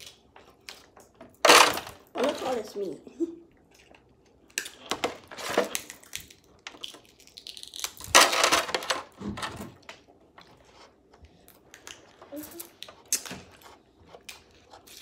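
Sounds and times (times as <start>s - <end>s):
crab shells cracking and snapping: 5.7s - 8.2s.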